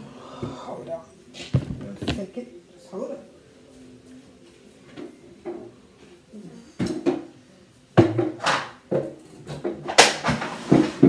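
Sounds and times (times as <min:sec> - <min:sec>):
plastic bottles clattering: 0:01.4 - 0:02.3, 0:08.0 - 0:11.0.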